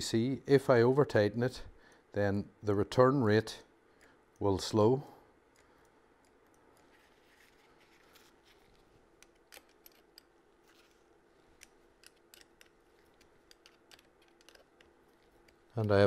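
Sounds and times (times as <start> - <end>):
faint steady hum: 0.0 - 16.0
hex key metallic clicks: 11.5 - 16.0.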